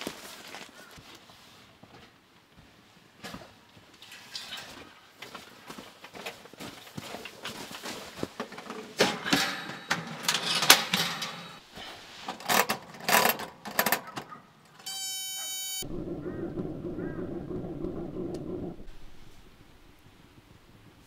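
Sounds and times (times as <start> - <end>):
heater clunks and rattles: 8.5 - 11.6, 15.9 - 20.1
short electronic beep: 14.9 - 15.8
heater low buzz: 15.8 - 21.0.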